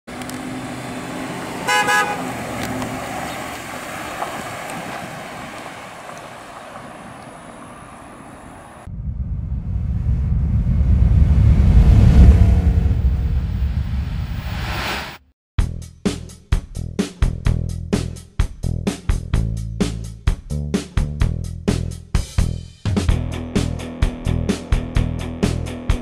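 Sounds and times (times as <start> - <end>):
car being driven: 0.1 - 14.1
car horn toot: 1.6 - 2.4
deep sound effect: 8.8 - 15.2.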